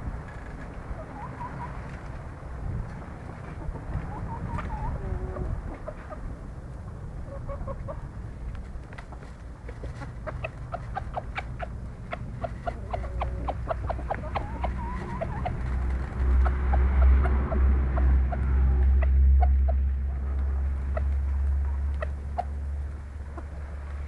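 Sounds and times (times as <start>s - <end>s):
low rumble: 0.0s - 24.0s
chickens clucking: 0.6s - 24.0s.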